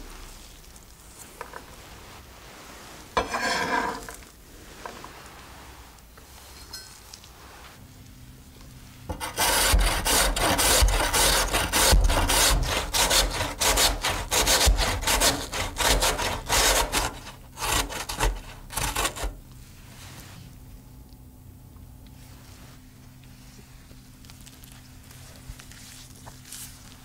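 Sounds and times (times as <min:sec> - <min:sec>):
potato rasping on grater: 0:09.1 - 0:19.4.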